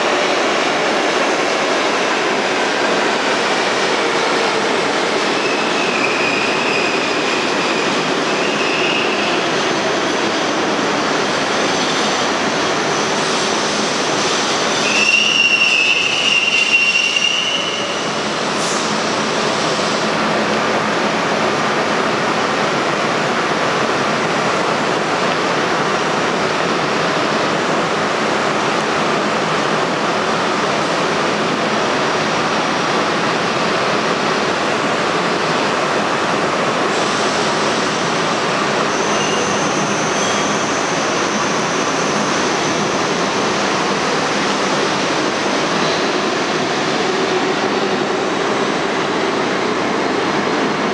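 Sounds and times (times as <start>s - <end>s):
train wheels rumbling on rails: 0.0s - 50.9s
high wheel squeal: 5.4s - 9.4s, 14.3s - 18.9s, 38.9s - 42.9s.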